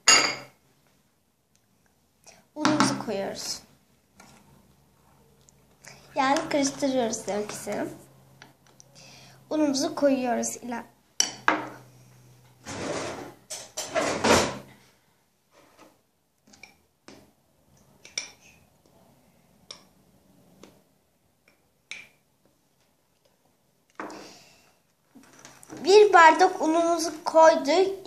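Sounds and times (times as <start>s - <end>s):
glass scraping flour tub: 12.6s - 14.2s.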